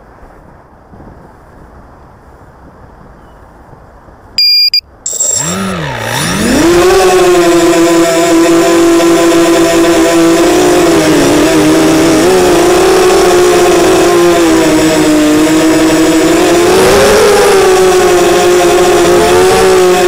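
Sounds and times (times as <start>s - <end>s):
quadcopter motors buzzing whine: 5.1s - 20.0s.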